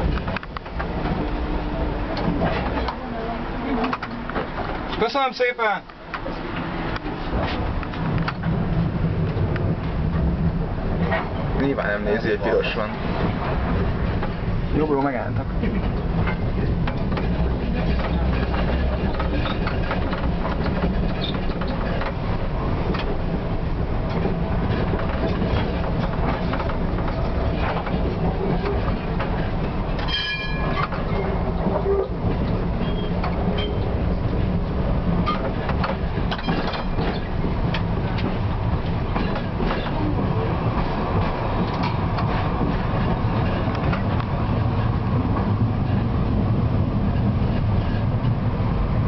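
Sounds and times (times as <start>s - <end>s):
rail clicks: 0.0s - 49.0s
tram motors and wheels rumbling: 0.0s - 49.0s
short high ringing tone: 30.1s - 30.7s.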